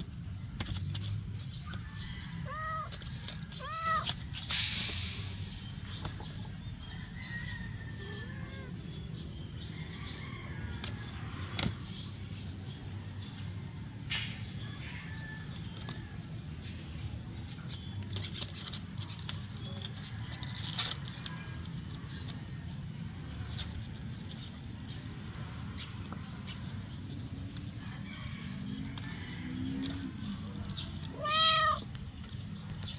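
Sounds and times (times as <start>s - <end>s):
kitten meowing: 31.1s - 31.9s.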